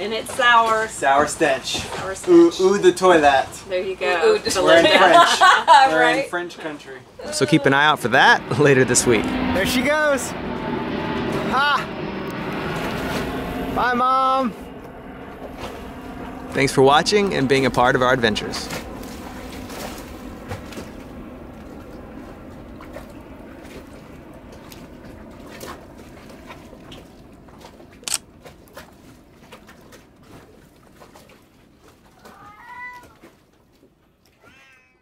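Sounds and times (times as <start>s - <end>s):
scattered clicks: 28.0s - 28.2s.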